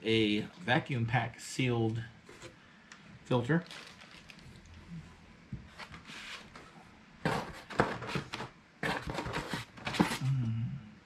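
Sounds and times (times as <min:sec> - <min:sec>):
paper and cardboard rustling: 0:05.7 - 0:10.3.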